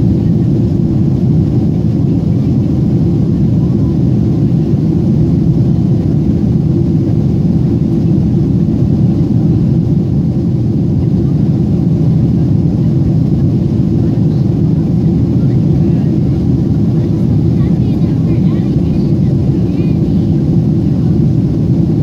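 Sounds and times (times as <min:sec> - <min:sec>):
airliner cabin rumble: 0:00.0 - 0:22.0.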